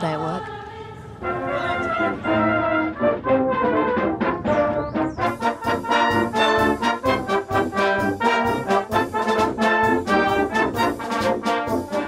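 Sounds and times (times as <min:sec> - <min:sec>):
brass band playing: 0:01.2 - 0:12.0.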